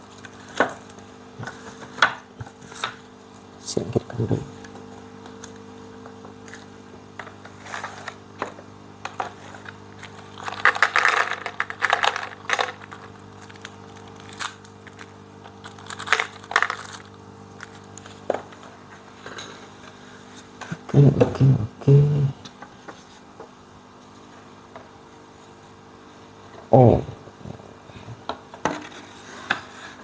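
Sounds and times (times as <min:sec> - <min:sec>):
steady low hum: 0:00.0 - 0:30.0
hands rummaging through plastic toolbox: 0:09.2 - 0:17.8.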